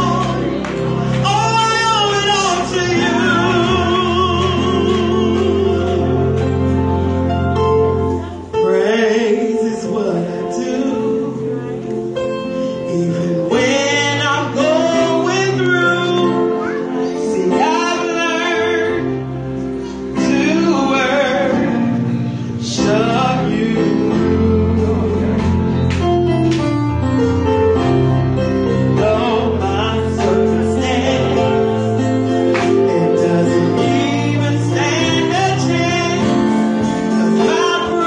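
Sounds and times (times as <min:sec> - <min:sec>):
sustained accompaniment chords: 0:00.0 - 0:38.0
woman singing with vibrato: 0:01.2 - 0:06.4.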